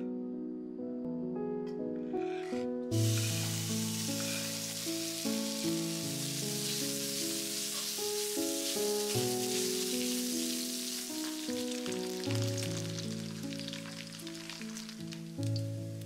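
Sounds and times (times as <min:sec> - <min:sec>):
background music: 0:00.0 - 0:16.0
spatula stirring in a wok: 0:02.3 - 0:04.9
pork fat sizzling in a wok: 0:02.9 - 0:16.0.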